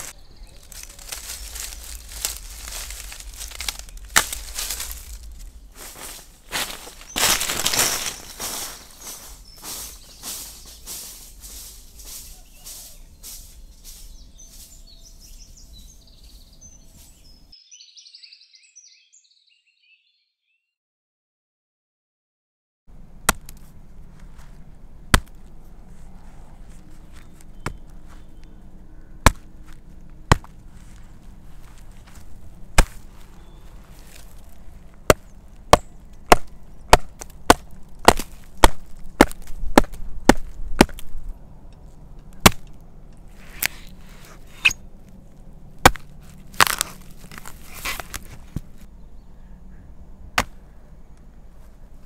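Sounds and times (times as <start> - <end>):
blade chopping into wood: 23.3 - 23.6, 25.1 - 25.4, 29.2 - 29.5, 30.3 - 30.6, 32.8 - 33.2, 35.1 - 41.1, 42.4 - 42.8, 45.8 - 48.8, 50.4 - 50.6.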